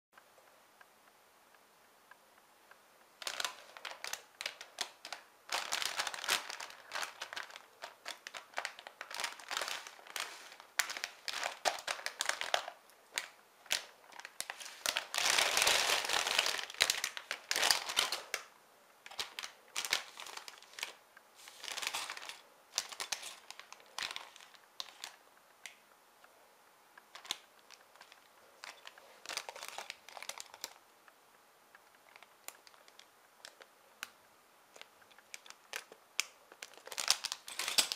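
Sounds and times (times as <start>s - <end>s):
plastic bags crinkling: 3.2s - 25.8s, 27.1s - 30.8s, 32.0s - 33.7s, 34.7s - 37.9s.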